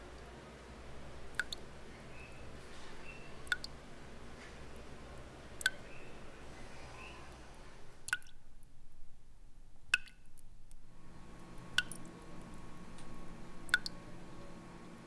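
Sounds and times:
water drops plinking: 1.3s - 2.4s, 3.0s - 3.8s, 8.1s - 8.4s, 10.0s - 10.3s, 11.8s - 12.1s, 13.7s - 14.0s.

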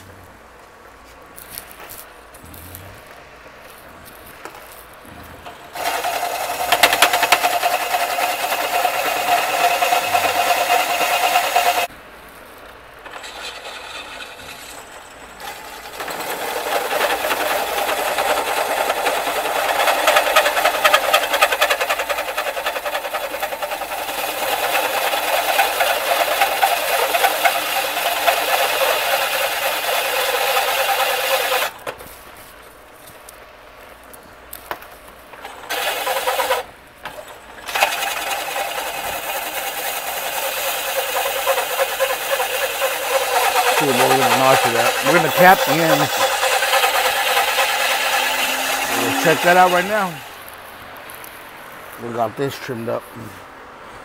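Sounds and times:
drill press cutting steel: 5.2s - 11.9s, 13.0s - 31.8s, 35.3s - 50.5s.

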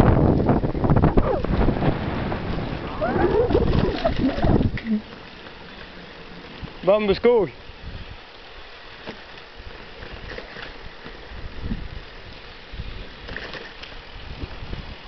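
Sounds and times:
wind rushing over microphone: 0.0s - 5.1s, 6.5s - 8.3s, 9.6s - 13.4s, 14.0s - 15.0s.

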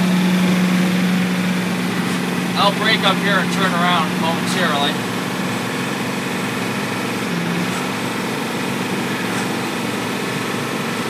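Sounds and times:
diesel engine cruising from inside cab: 0.0s - 11.0s.

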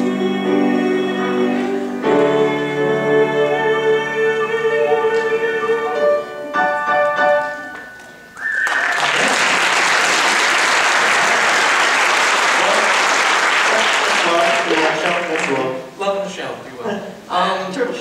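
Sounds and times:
grand piano chords: 0.0s - 8.4s
audience applauding: 8.4s - 15.8s.

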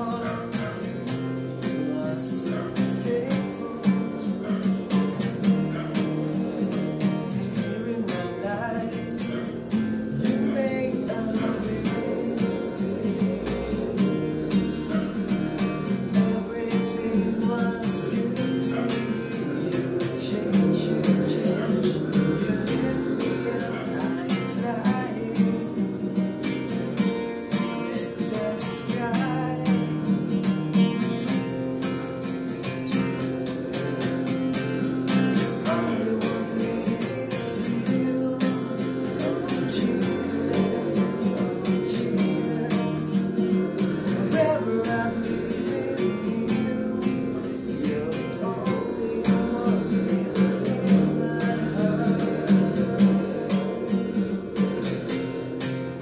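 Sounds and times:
man singing: 0.0s - 26.4s, 27.5s - 56.0s
acoustic guitar strummed: 0.0s - 56.0s.

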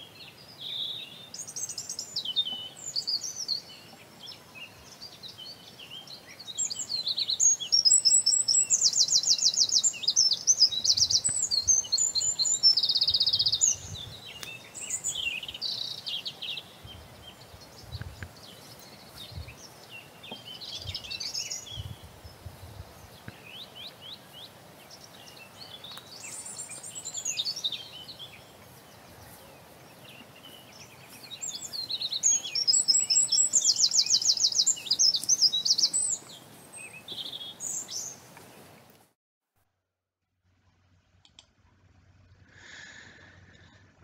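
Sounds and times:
birds chirping and trilling: 0.0s - 38.8s
steady background hiss: 0.0s - 39.1s.

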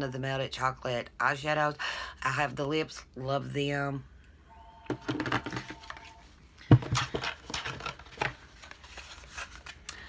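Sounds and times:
packaging rustling: 5.1s - 10.0s.

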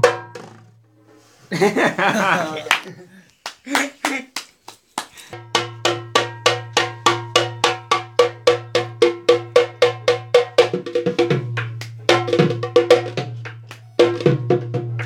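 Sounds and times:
barrel drum beating: 0.0s - 0.7s, 5.4s - 15.0s.

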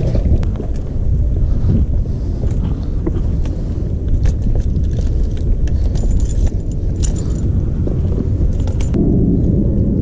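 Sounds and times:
wind rumbling on microphone: 0.0s - 10.0s
fishing gear clicking and jingling: 4.0s - 9.0s.

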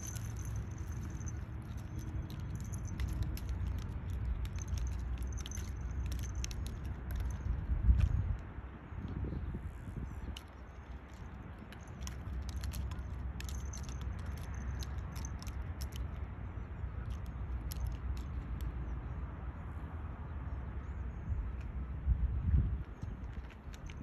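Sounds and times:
collar tag jingling: 0.0s - 8.4s, 10.2s - 19.0s, 22.9s - 24.0s.

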